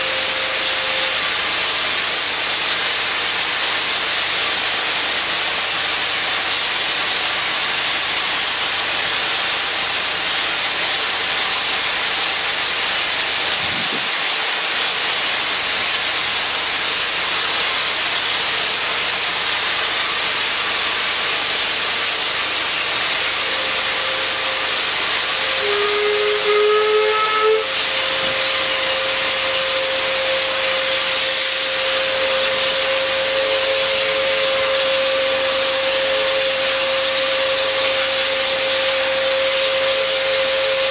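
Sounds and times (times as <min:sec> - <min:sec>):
steam whistle tone: 0:00.0 - 0:03.4, 0:22.3 - 0:40.9
steam hissing: 0:00.0 - 0:40.9.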